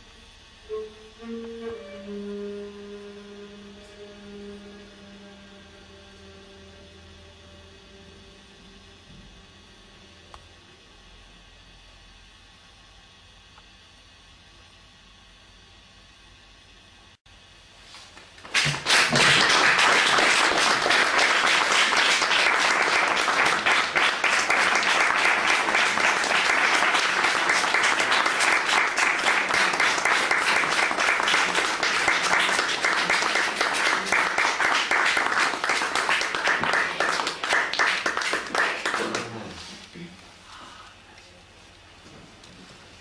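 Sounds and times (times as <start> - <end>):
audience applauding: 18.4 - 39.7.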